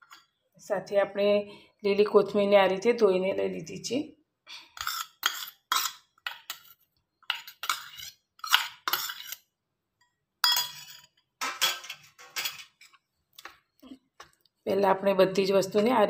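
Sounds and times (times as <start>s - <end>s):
steel bowl clinking on bowl rim: 10.4s - 12.7s.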